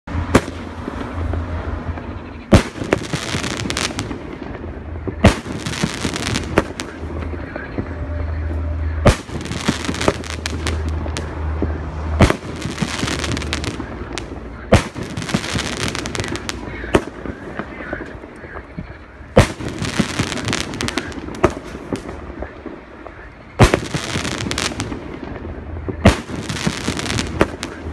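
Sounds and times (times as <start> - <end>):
firework bangs: 0.1 - 27.9
firework hiss: 9.1 - 11.4, 12.2 - 17.4, 19.4 - 22.2, 26.1 - 27.9.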